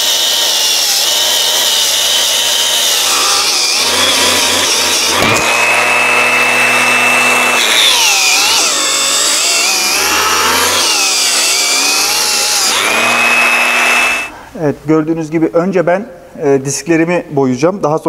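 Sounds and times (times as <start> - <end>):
angle grinder whining: 0.0 - 14.4
grinder scouring rust off metal: 0.0 - 14.4.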